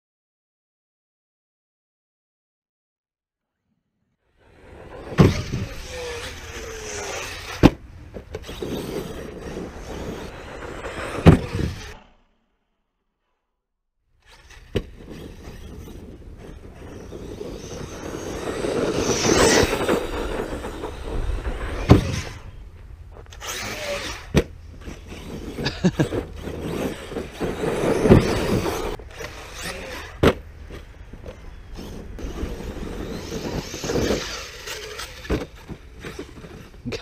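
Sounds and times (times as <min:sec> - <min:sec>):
rc truck motor and tyres: 0:04.3 - 0:13.5, 0:14.1 - 0:37.0
sharp knocks from landings: 0:05.0 - 0:12.1, 0:14.4 - 0:36.8.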